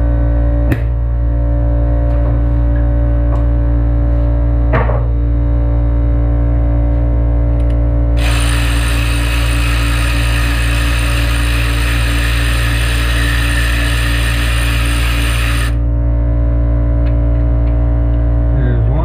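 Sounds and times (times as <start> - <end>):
air blow gun hissing: 8.2 - 15.8.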